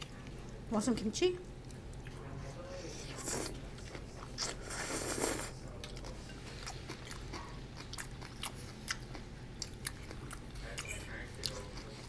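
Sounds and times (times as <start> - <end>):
wet chewing with mouth clicks: 3.2 - 12.0.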